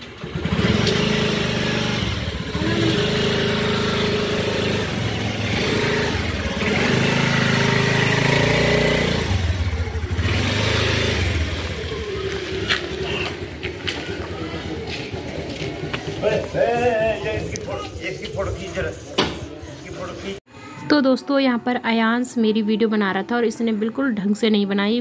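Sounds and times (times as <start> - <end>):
motor scooter engine running: 0.0 - 18.0.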